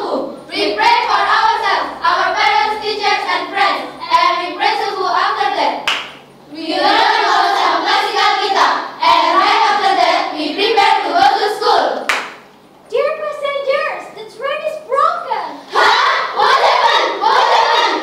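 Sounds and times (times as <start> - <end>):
girls singing in unison: 0.0 - 12.1, 15.7 - 18.0
sharp clap: 5.8 - 6.3, 12.0 - 12.5.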